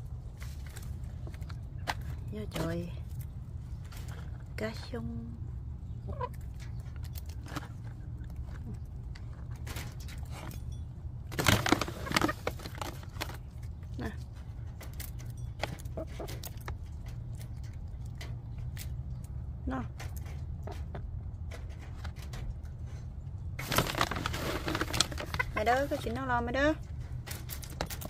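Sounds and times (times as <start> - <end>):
steady low hum: 0.0 - 28.0
chickens clucking: 5.8 - 10.2, 14.6 - 19.0, 20.4 - 23.2, 24.2 - 26.2
chickens pecking at wire: 6.0 - 28.0.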